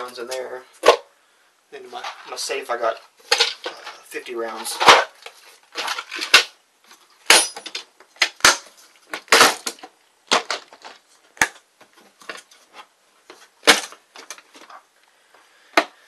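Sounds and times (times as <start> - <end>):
plastic cans knocking and clacking: 4.6 - 6.6, 7.3 - 12.6.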